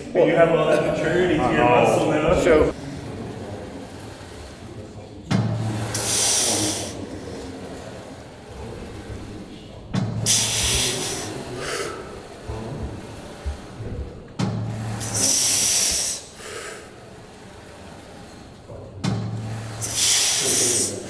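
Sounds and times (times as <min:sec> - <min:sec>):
hissing exhale through teeth: 0:05.9 - 0:07.0, 0:19.8 - 0:20.9
man breathing hard: 0:14.9 - 0:17.0.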